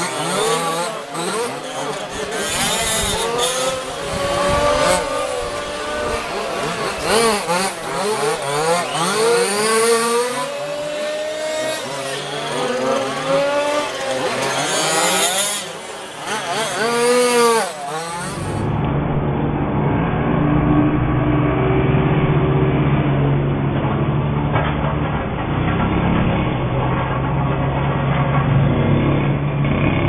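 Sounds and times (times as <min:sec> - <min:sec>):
small engines revving: 0:00.0 - 0:19.2
low engine drone: 0:18.1 - 0:30.0.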